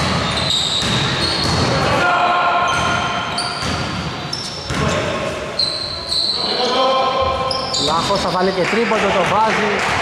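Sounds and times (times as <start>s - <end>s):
basketball bouncing: 0.0s - 1.8s, 2.8s - 4.0s, 4.6s - 5.0s
sneakers squeaking on court: 0.0s - 1.8s, 2.6s - 8.6s
players' voices: 4.5s - 10.0s.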